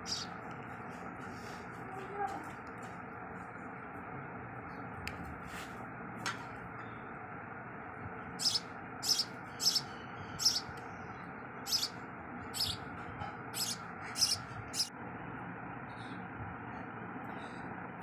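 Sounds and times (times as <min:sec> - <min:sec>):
chicks chirping: 0:00.0 - 0:00.3, 0:08.4 - 0:10.8, 0:11.7 - 0:12.9, 0:13.6 - 0:14.9.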